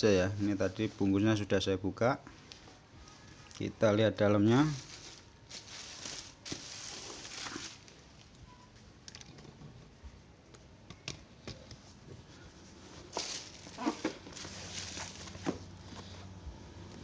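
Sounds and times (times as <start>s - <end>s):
plastic bag rustling and crinkling: 4.4s - 8.4s, 12.8s - 16.1s.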